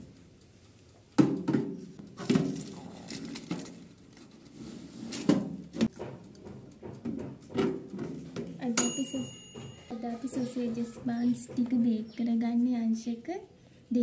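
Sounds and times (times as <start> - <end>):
metal tray knocking on wire rack: 5.9 - 12.1.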